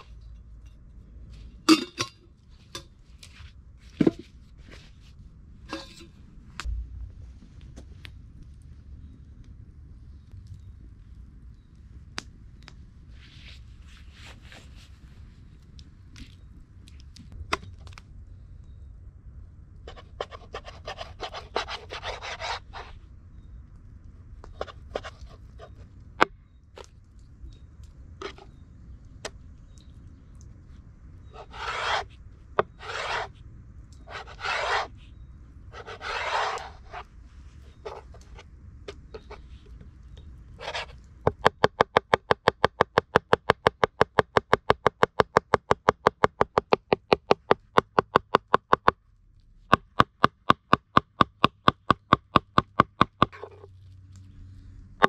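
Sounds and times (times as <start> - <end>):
knife scraping board: 20.5 - 23.0, 31.4 - 33.4, 34.1 - 34.9, 35.8 - 37.1, 37.7 - 38.2, 40.6 - 41.0.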